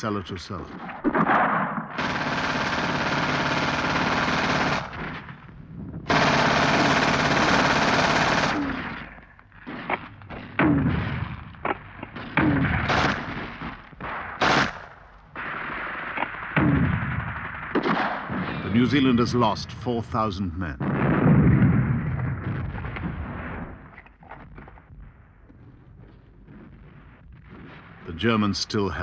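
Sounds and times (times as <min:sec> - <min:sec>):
single gunshots and blasts: 0:01.0 - 0:09.4, 0:10.3 - 0:19.6
machine-gun fire: 0:01.0 - 0:19.3, 0:20.8 - 0:24.0.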